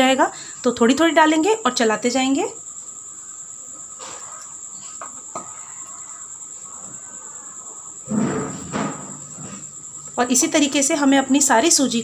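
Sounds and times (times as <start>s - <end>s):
cricket trill: 0.0s - 12.0s.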